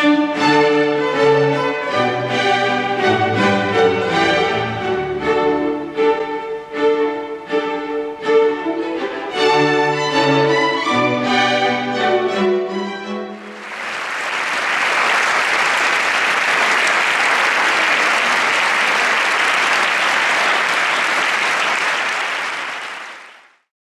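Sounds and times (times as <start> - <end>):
string orchestra with cello: 0.0 - 13.7
audience applauding: 13.4 - 23.7.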